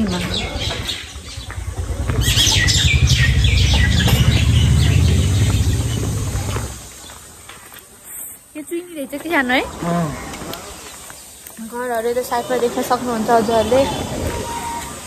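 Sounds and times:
loud low rumble: 0.0s - 6.9s
birds chirping: 0.0s - 15.0s.

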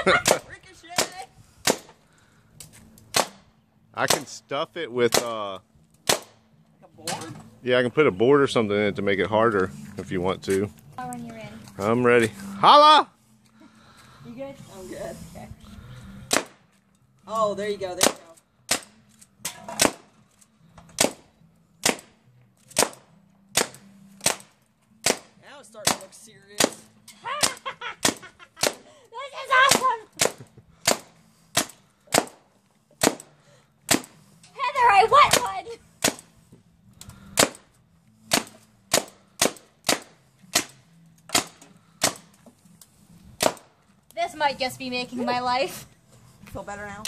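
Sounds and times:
paintball marker firing: 3.0s - 3.5s, 4.1s - 4.3s, 6.0s - 6.4s, 16.3s - 16.6s, 18.0s - 19.0s, 19.7s - 20.1s, 20.9s - 28.8s, 29.6s - 32.4s, 33.0s - 34.2s, 35.3s - 36.3s, 37.2s - 37.7s, 38.3s - 42.4s, 43.4s - 43.7s.

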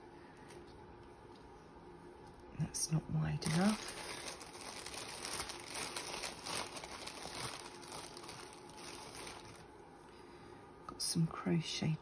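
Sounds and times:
craft materials crinkling and rustling: 3.3s - 9.8s.

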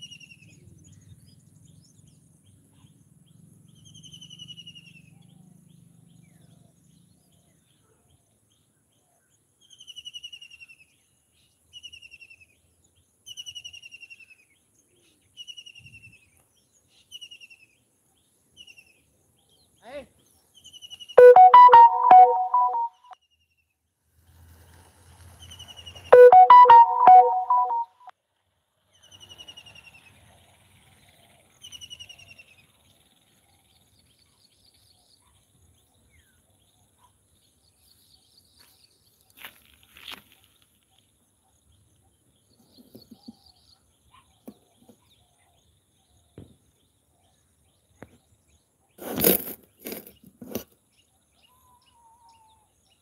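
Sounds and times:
loud tuned phrases: 21.2s - 23.0s, 26.2s - 27.9s.

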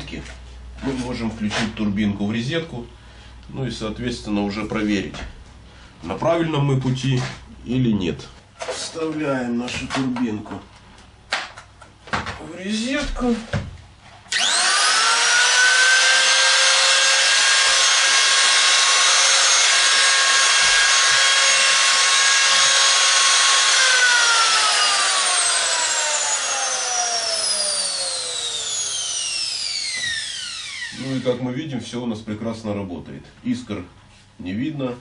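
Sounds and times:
angle grinder motor whining: 14.3s - 31.4s.

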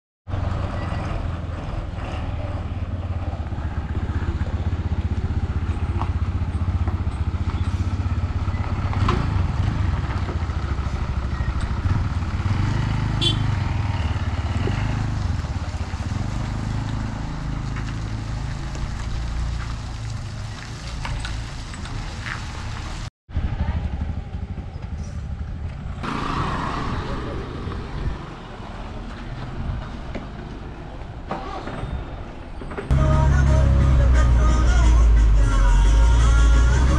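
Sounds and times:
bus engine droning: 20.9s - 36.9s.

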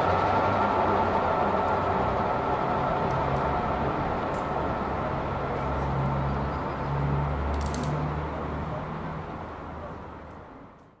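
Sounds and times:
steam train rumble: 0.0s - 7.4s
clicks: 7.5s - 8.0s.

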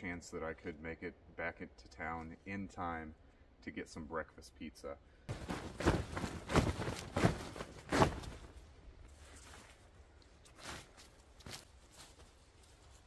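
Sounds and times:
nylon rustling: 5.3s - 13.0s
footsteps on forest floor: 10.5s - 13.0s.

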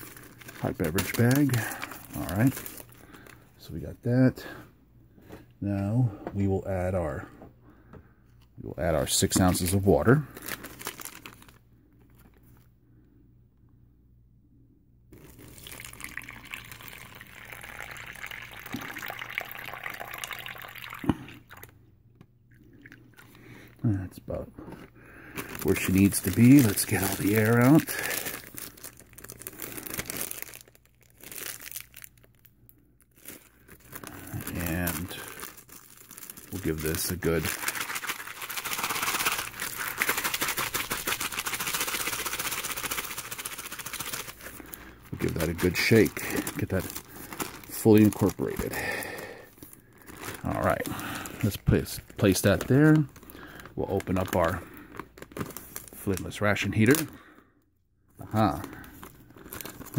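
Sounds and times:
water pouring into plastic bag: 0.0s - 3.2s, 15.2s - 21.7s, 25.4s - 32.4s, 33.2s - 57.1s, 58.4s - 59.9s.

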